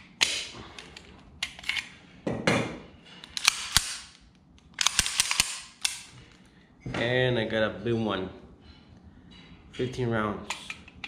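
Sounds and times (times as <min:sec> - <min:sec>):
pistol metal clicks: 0:03.2 - 0:06.1.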